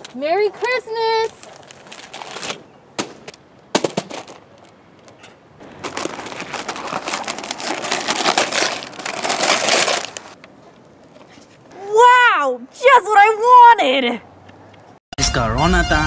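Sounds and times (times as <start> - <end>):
wrapping paper tearing and crumpling: 1.3 - 2.6, 5.6 - 10.4.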